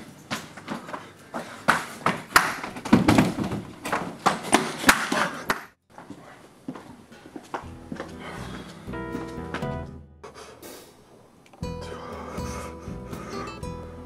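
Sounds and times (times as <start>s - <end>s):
body thuds on hard floor: 2.6s - 4.4s.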